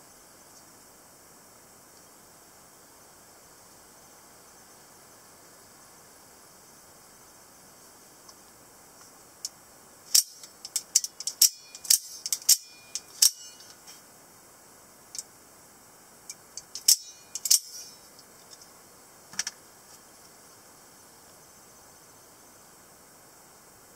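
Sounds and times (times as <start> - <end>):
knife blade clicking: 10.2 - 13.7, 16.7 - 18.0.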